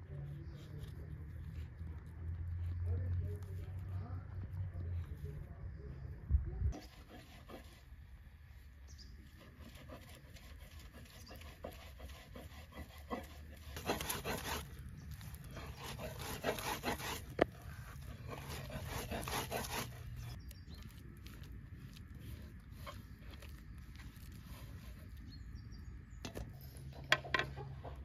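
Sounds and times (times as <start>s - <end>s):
hands rubbing wet mixture in bowl: 20.0s - 25.6s.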